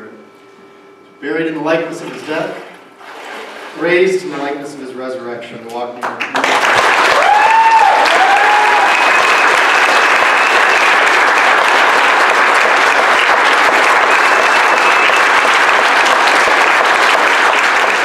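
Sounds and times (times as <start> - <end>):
crowd clapping: 6.0 - 18.0.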